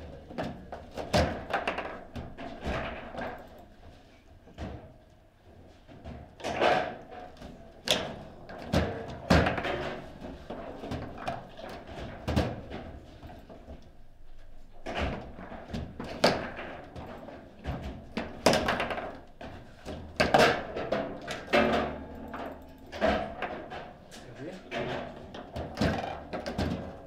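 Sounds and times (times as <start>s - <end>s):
foosball ball knocking: 20.1s - 23.9s
sharp loud foosball shots: 20.2s - 22.2s.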